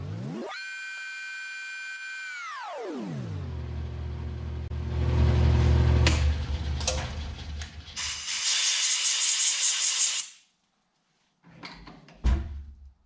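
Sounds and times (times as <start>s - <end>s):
compressed-air blow gun hissing: 8.0s - 10.2s.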